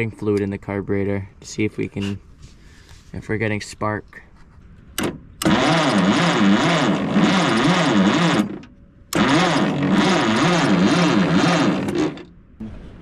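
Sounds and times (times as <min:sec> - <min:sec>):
starter cranking engine: 0:05.0 - 0:12.4.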